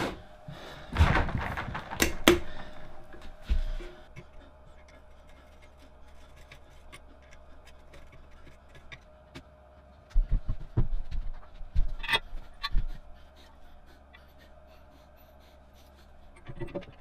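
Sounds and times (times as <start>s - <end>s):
faint metal clicks and scraping: 4.1s - 9.5s.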